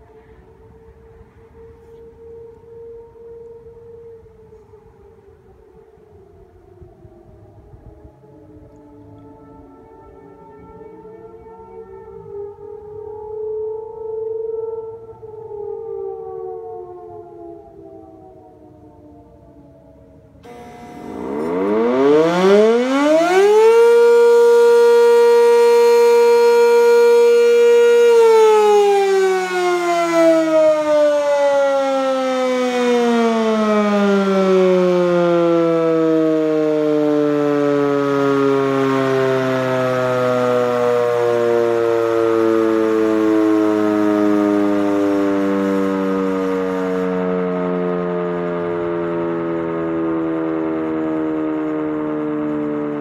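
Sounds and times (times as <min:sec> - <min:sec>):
warning siren winding up and down: 0:20.4 - 0:53.0.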